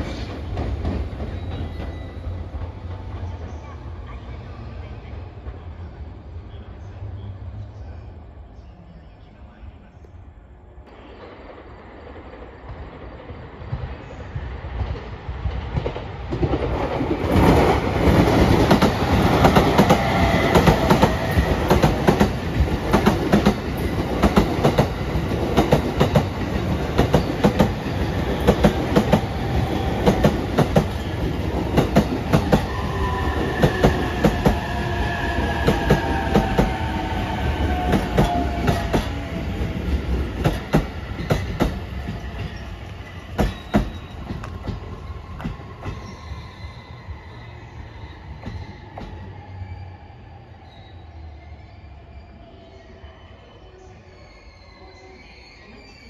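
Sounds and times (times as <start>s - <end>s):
train running rumble: 10.9s - 46.2s.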